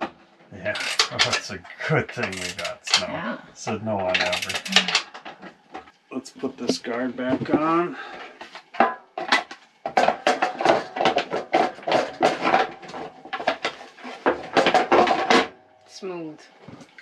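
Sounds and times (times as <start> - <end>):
metal guard knocking and rattling: 8.8 - 15.5.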